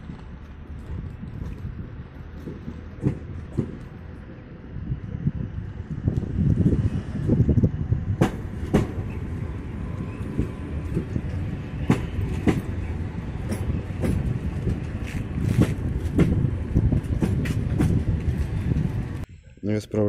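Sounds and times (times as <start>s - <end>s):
wheels clicking over rail joints: 0.0s - 4.4s, 8.2s - 19.3s
train rumbling: 0.0s - 19.8s.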